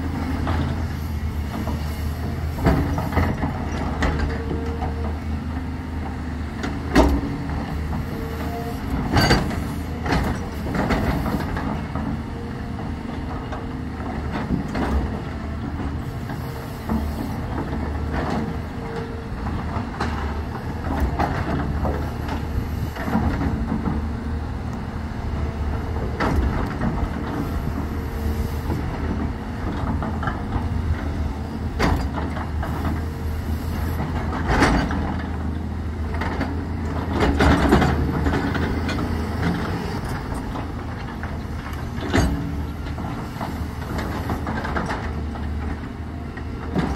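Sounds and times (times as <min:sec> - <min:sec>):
excavator diesel engine running: 0:00.0 - 0:46.9
metal clanks and knocks: 0:09.0 - 0:12.2, 0:31.7 - 0:33.1, 0:34.0 - 0:35.5, 0:36.1 - 0:45.8.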